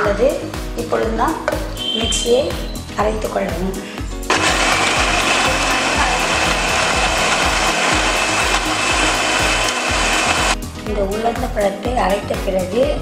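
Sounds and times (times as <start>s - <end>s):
coarse grinding noise: 4.3s - 10.6s
mixer grinder motor whine: 4.3s - 10.6s.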